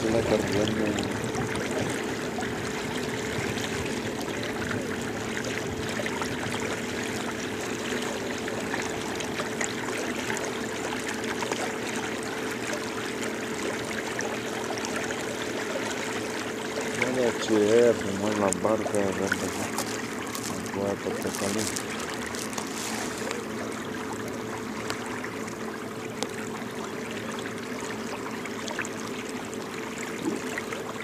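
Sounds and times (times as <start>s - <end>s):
water lapping against a boat: 0.0s - 31.0s
small ticks: 19.3s - 23.4s.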